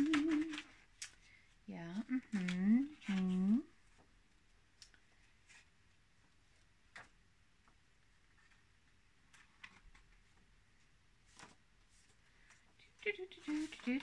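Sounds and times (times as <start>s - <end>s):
paper pages turning: 0.0s - 1.0s, 9.3s - 10.4s, 11.2s - 12.6s, 13.3s - 14.0s.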